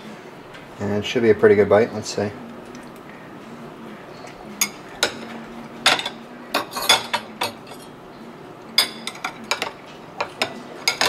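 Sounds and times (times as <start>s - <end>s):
knife and fork clinking on plate: 5.9s - 8.0s.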